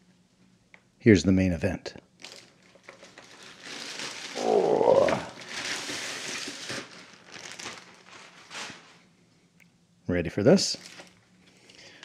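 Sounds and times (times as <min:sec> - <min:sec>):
plastic bag rustling: 0:02.2 - 0:09.1, 0:10.7 - 0:11.7
cardboard package sliding groan: 0:03.7 - 0:06.9.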